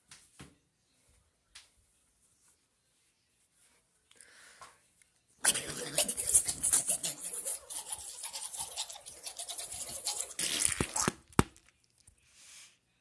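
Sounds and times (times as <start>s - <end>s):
scrape: 5.5s - 10.7s, 12.3s - 12.8s.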